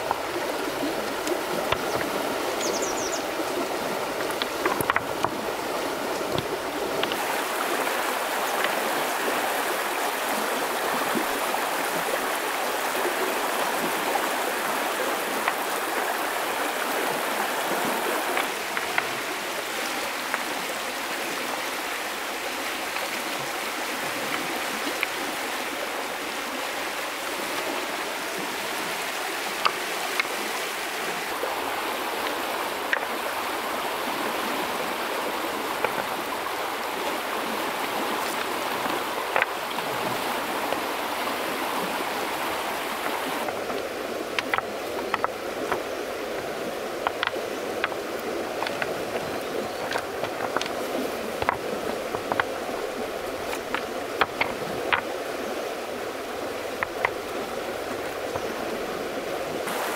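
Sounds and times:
stream water rushing over stones: 0:00.0 - 0:59.9
stones clicking together: 0:04.2 - 0:05.4, 0:43.4 - 0:45.9, 0:47.0 - 0:52.6, 0:53.4 - 0:55.1.

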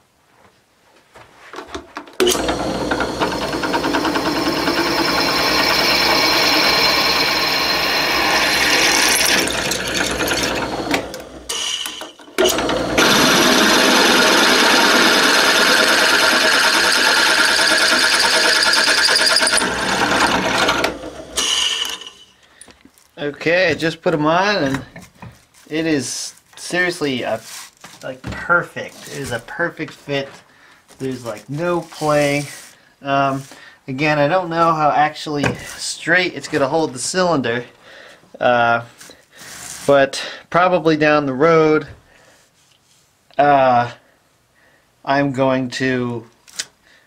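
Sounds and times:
drill grinding into metal: 0:02.2 - 0:22.4.

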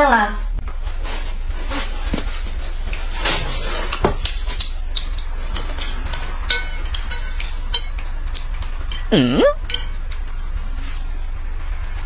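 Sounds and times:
low steady hum: 0:00.0 - 0:12.0
chopsticks clinking on bowls: 0:05.0 - 0:10.4.

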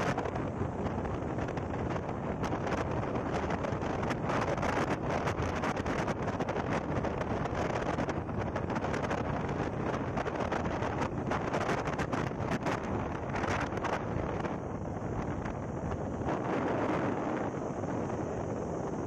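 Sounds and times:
wind buffeting the microphone: 0:00.0 - 0:19.0.

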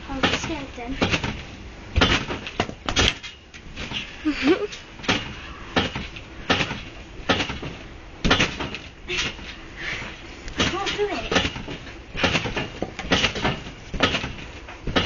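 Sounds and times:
trampoline mat and springs landing: 0:00.0 - 0:15.0.

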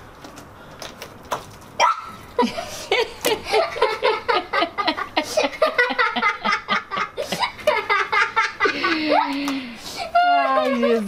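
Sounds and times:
sustained laughter: 0:02.4 - 0:09.4.

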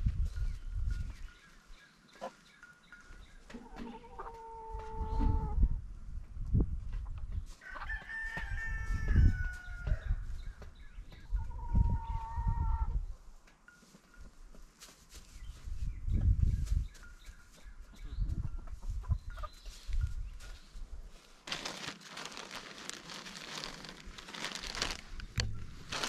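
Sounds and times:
rooster crowing: 0:07.6 - 0:09.8.

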